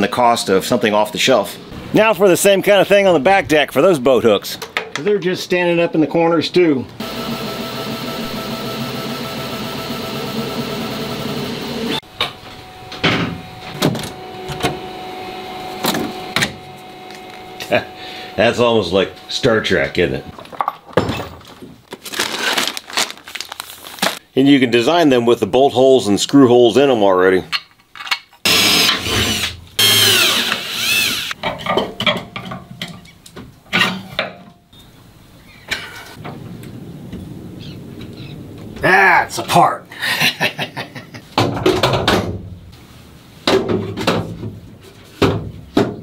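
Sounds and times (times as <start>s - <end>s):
faint steady hum: 12.0s - 20.6s
cordless drill motor whine: 28.5s - 31.4s.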